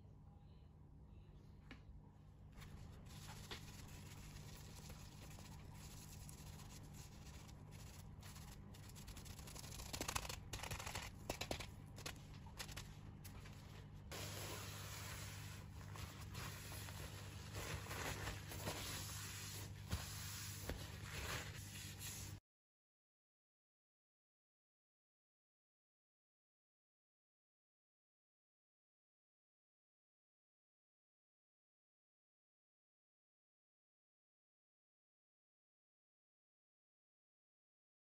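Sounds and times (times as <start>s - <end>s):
sponge scrubbing countertop: 2.8s - 9.8s, 14.1s - 22.4s.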